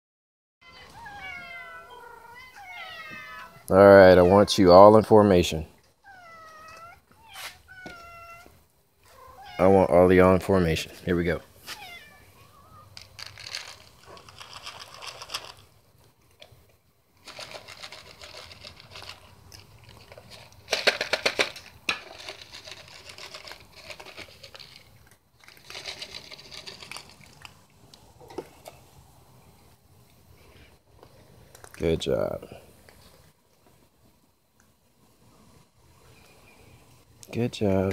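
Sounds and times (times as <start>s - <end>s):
cats crunching dry kibble: 12.8s - 29.0s, 30.0s - 34.7s.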